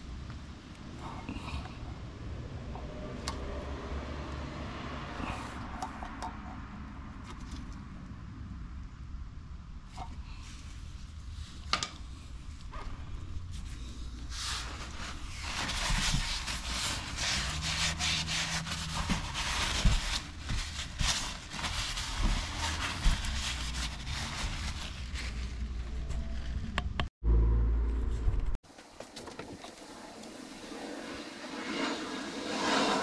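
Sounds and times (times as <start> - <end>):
cloth rag wiping plastic: 13.5 - 26.5.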